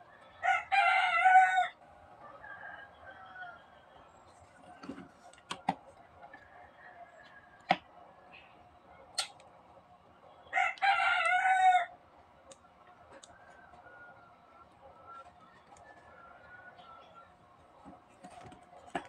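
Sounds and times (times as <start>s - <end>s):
rooster crowing: 0.0s - 4.1s, 6.3s - 7.8s, 10.5s - 12.0s, 13.2s - 17.3s.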